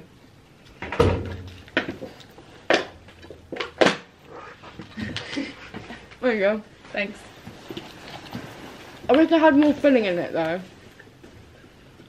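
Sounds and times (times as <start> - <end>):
handling clicks and rustles: 6.9 - 12.0.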